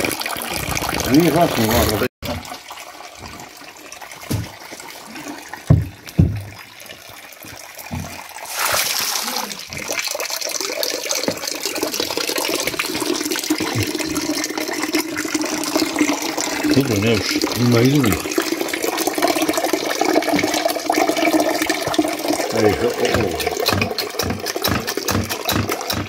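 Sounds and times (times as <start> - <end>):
juice trickling into bucket: 0.0 - 26.0
short dull thumps: 5.7 - 6.6.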